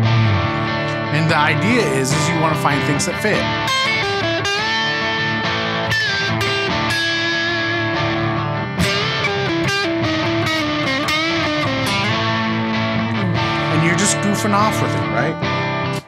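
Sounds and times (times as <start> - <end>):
backing track of strummed chords: 0.0 - 16.0
electric guitar lead with bends: 0.0 - 16.0.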